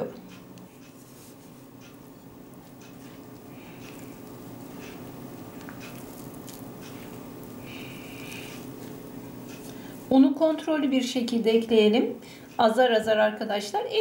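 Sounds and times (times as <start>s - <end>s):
steady low hum: 0.0s - 14.0s
hands squishing dough: 2.8s - 8.8s.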